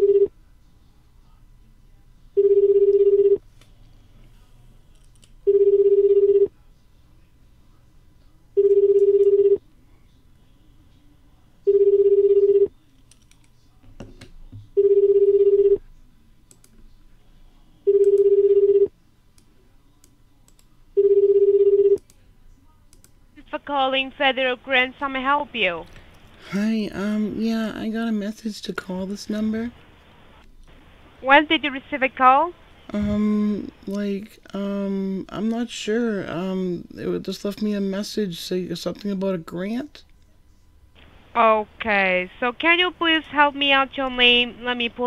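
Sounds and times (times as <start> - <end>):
phone ringback tone: 0.0 - 0.3, 2.4 - 3.4, 5.5 - 6.5, 8.6 - 9.6, 11.7 - 12.7, 14.8 - 15.8, 17.8 - 18.9, 21.0 - 22.0.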